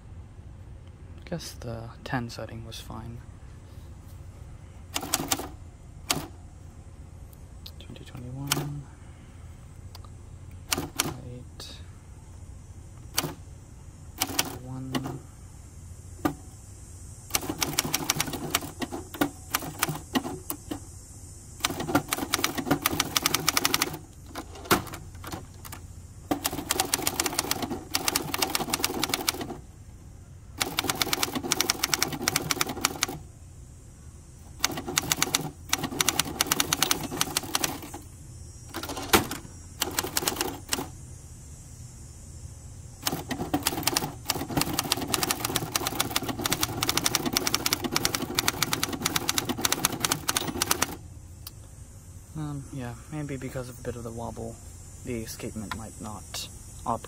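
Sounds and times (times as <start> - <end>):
manual typewriter typing: 5.0 - 6.4, 8.3 - 8.8, 10.7 - 11.3, 13.1 - 13.4, 14.2 - 15.2, 17.3 - 20.6, 21.6 - 29.6, 30.6 - 33.2, 34.5 - 38.0, 38.7 - 40.9, 43.0 - 51.0.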